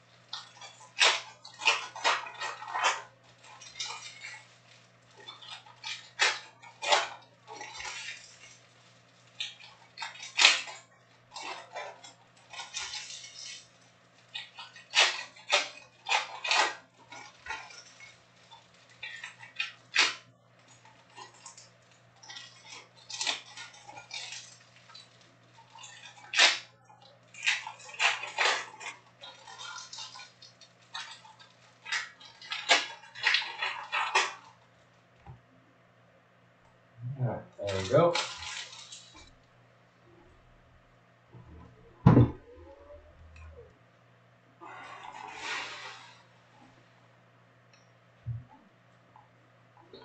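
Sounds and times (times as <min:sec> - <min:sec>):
foil wrappers crinkling: 0:00.0 - 0:35.2, 0:37.6 - 0:39.6.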